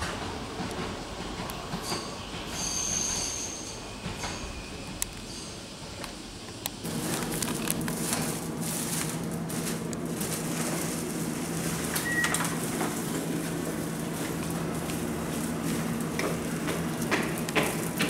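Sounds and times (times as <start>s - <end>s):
faint clicks and rustles: 6.6s - 18.0s
short high beep: 12.0s - 12.4s.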